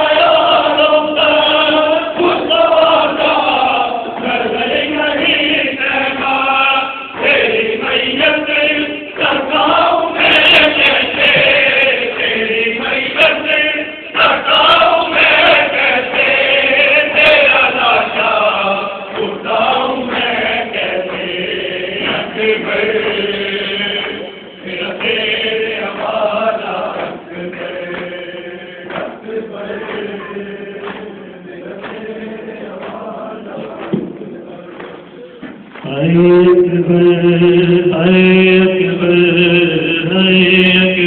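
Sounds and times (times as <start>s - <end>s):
men chanting a lament: 0.0s - 41.0s.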